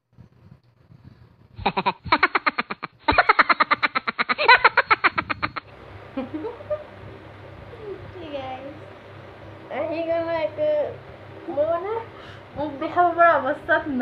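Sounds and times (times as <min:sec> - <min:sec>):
loud laughter: 0:01.6 - 0:06.8.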